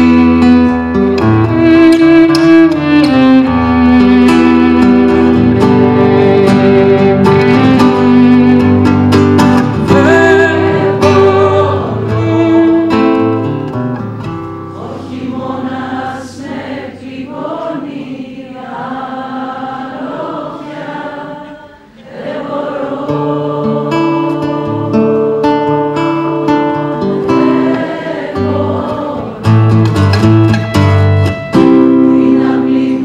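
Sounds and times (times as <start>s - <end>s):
classical guitar strummed chords: 0.0s - 17.8s, 22.8s - 33.0s
person singing without words: 9.8s - 13.2s.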